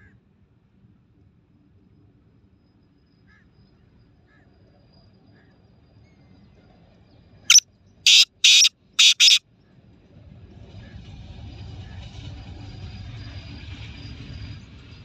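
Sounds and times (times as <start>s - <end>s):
bird harsh calls: 8.1s - 9.4s
soft chirps: 8.1s - 9.4s.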